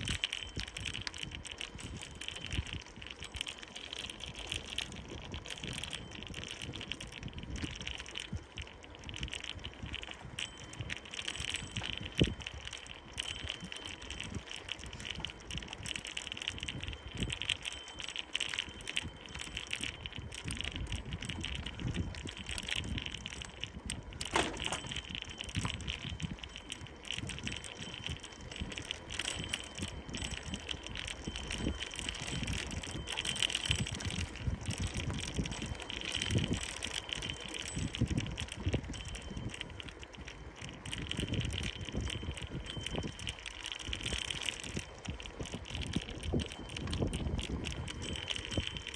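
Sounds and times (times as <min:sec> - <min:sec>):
bicycle tyre noise: 0:00.0 - 0:48.9
wind buffeting microphone: 0:00.0 - 0:48.9
rattles and knocks from bumps: 0:24.2 - 0:25.8.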